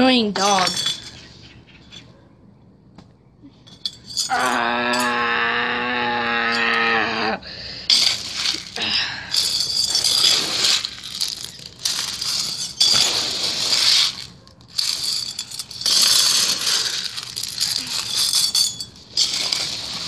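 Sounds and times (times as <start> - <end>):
gravel crunching and clinking: 0.0 - 20.0.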